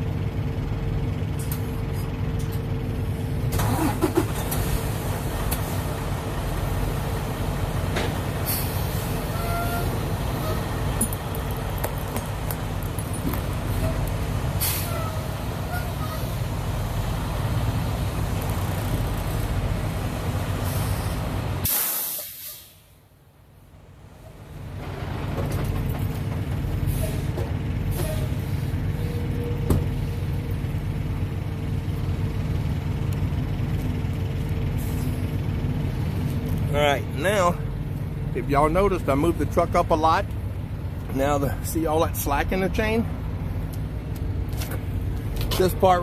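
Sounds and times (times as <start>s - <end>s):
truck diesel engine running: 0.0s - 21.7s, 22.7s - 46.0s
air brake hiss: 8.4s - 9.9s, 14.6s - 15.2s, 20.6s - 23.0s, 26.9s - 27.3s.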